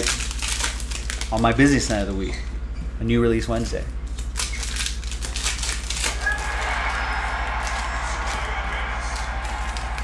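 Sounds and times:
steady low hum: 0.0 - 10.0
trading cards clicking: 4.1 - 10.0.

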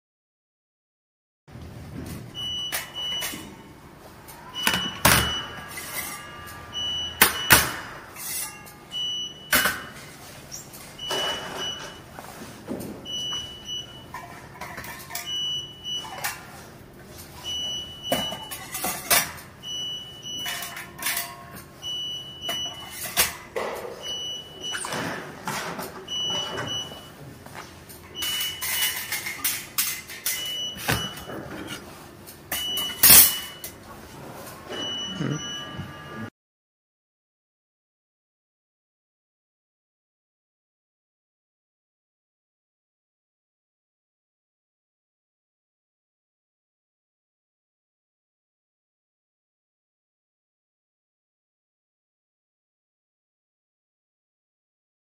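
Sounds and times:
short high beep: 4.6 - 7.8, 32.5 - 33.7, 34.8 - 36.3.

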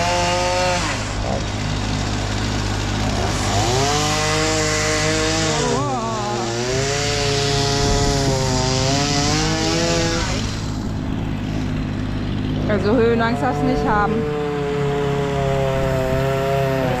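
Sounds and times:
chainsaw revving: 0.0 - 17.0
engine drone: 0.0 - 17.0.

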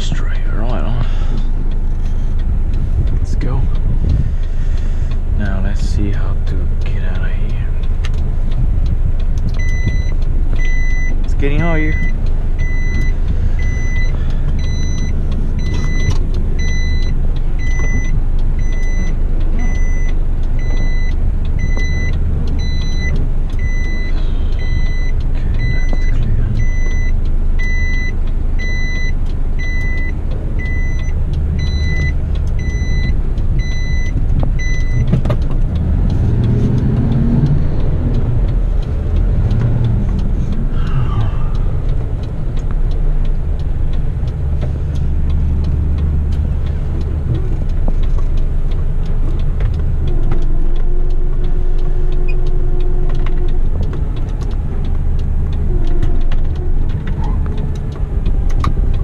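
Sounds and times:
truck diesel engine running: 0.0 - 59.0
electronic warning beeps: 9.6 - 35.1.

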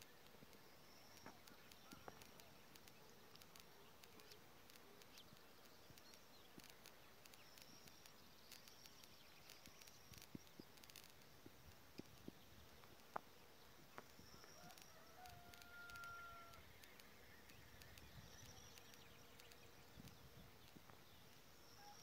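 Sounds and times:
soft clicks: 0.0 - 21.4
faint insects buzzing: 0.0 - 22.0.

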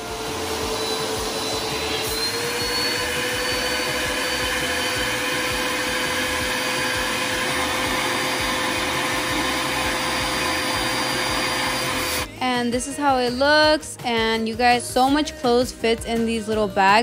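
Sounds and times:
vacuum cleaner running: 0.0 - 12.4.

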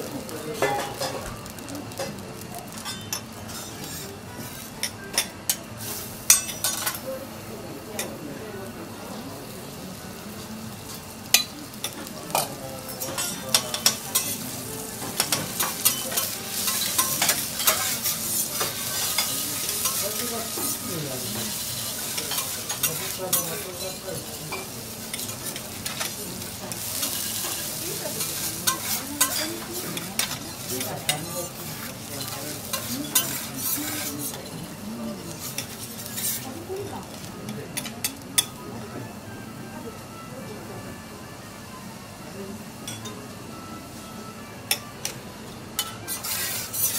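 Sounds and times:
garlic sizzling in oil: 0.0 - 38.9, 41.9 - 46.9
metal spatula clicking and scraping: 15.2 - 20.8, 28.3 - 34.6, 35.4 - 36.5, 45.8 - 46.9.

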